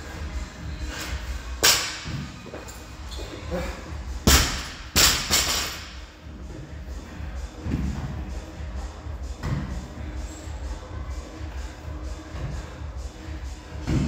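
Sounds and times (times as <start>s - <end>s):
barbell thudding on rubber floor: 4.3s - 6.0s.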